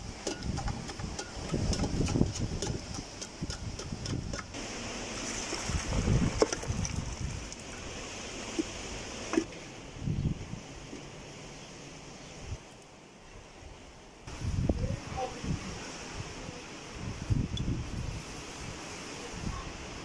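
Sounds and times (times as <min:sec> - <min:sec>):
wind buffeting microphone: 0:00.4 - 0:04.6, 0:05.5 - 0:07.6, 0:14.3 - 0:15.8, 0:17.0 - 0:18.2
broth pouring: 0:04.5 - 0:09.5.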